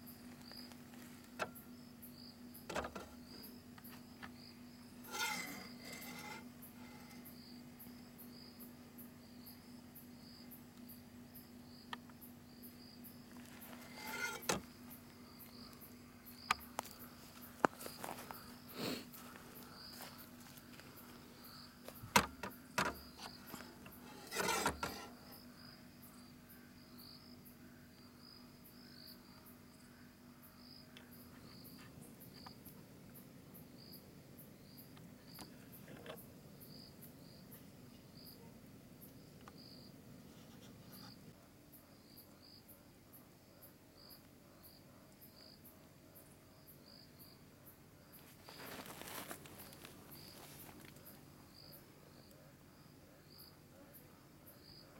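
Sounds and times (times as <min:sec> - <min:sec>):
insects chirping: 0:00.0 - 0:41.3, 0:43.9 - 0:53.6
brief rustle: 0:05.1 - 0:07.3.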